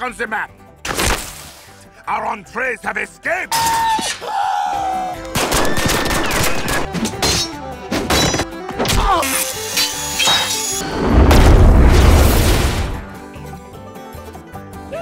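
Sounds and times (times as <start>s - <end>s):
cartoon bangs and crashes: 10.2s - 13.1s.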